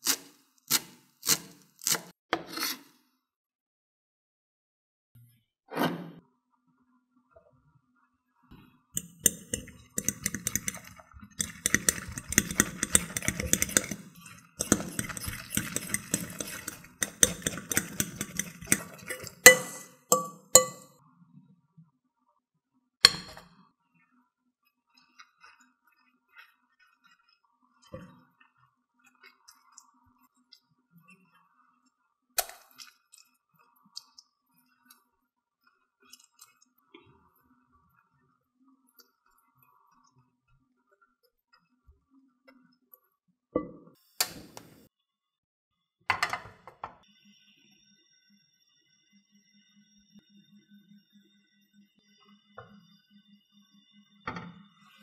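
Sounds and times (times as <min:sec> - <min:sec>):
spoon clinking on glass: 0:09.0 - 0:20.9
spoon stirring batter in bowl: 0:09.0 - 0:20.9.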